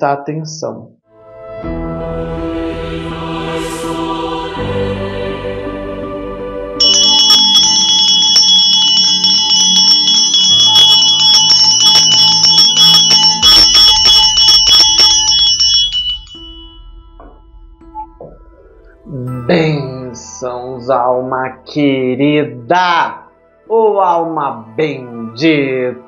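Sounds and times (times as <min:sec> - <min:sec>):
soft music: 0:01.1 - 0:26.0
hand bell ringing: 0:06.8 - 0:17.4.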